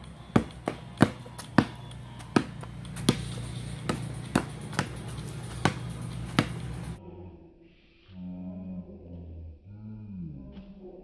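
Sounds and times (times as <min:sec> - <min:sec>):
basketball bouncing on concrete: 0:00.0 - 0:07.0
steady low hum: 0:00.0 - 0:11.0.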